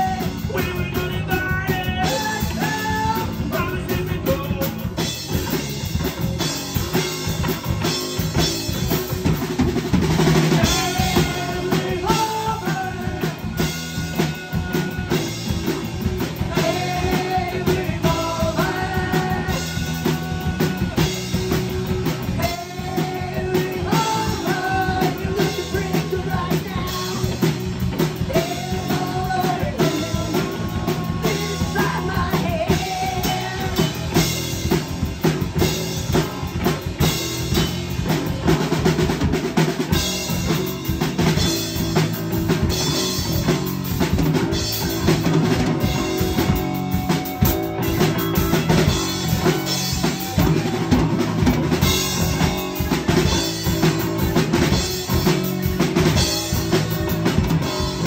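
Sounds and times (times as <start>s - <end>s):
man singing: 0.0s - 5.2s, 10.3s - 34.8s
drum kit beat: 0.0s - 58.0s
electric bass: 0.0s - 58.0s
electric guitar: 0.0s - 58.0s.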